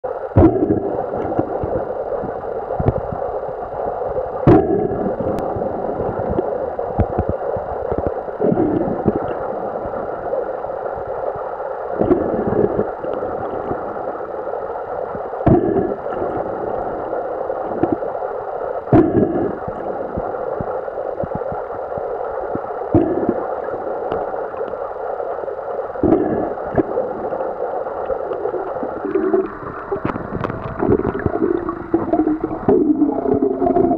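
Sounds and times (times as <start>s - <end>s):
muffled underwater rushing: 0.0s - 33.9s.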